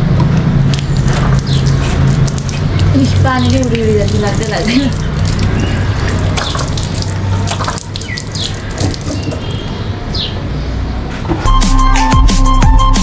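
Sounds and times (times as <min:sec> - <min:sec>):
tap water splashing on wheel: 0:00.2 - 0:09.6
music: 0:11.4 - 0:13.0.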